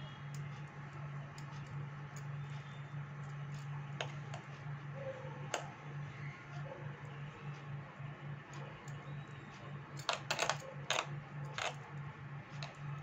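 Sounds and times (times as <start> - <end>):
steady low hum: 0.0 - 13.0
bangles clinking: 10.0 - 11.8.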